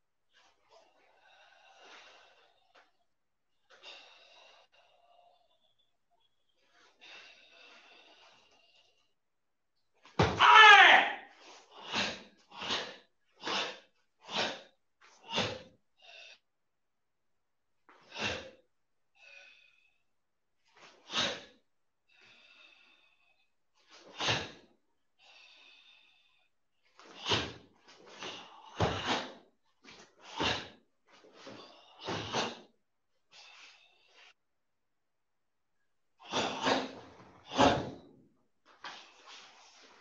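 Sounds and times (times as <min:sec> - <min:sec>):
bare feet on foam mats: 0:10.0 - 0:15.8, 0:26.8 - 0:32.7, 0:36.2 - 0:40.0
sharp forceful exhalations: 0:36.2 - 0:38.1.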